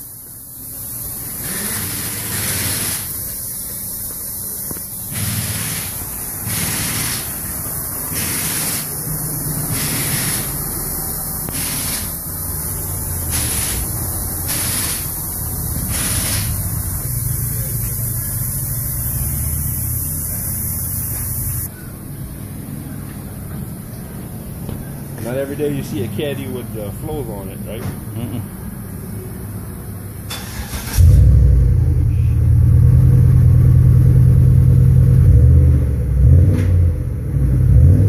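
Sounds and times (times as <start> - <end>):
deep car exhaust note: 31.0 - 38.0.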